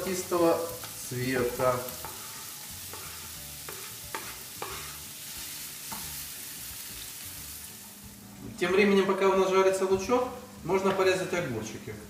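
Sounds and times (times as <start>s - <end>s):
onion sizzling in frying pan: 0.0s - 12.0s.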